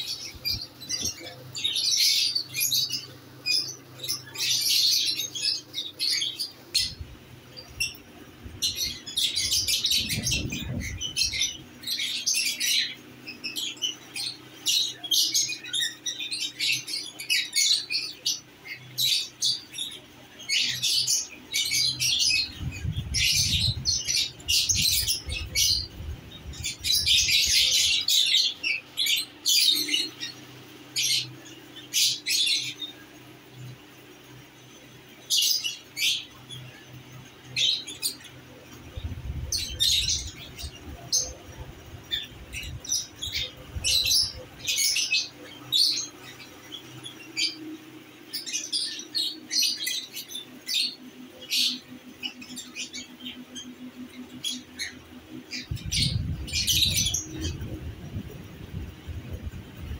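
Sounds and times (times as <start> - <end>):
lovebirds chirping and squawking: 0.0 - 59.9
low rumbling noise: 6.8 - 11.9, 22.4 - 27.9, 38.8 - 44.7, 55.6 - 59.9.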